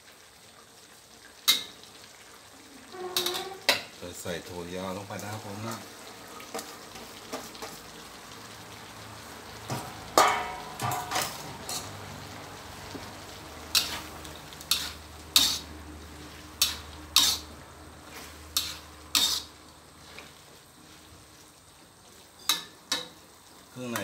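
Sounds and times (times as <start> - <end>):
food sizzling in a wok: 0.0 - 24.0
metal spatula scraping a wok: 2.9 - 3.9, 9.7 - 12.0, 13.7 - 20.2.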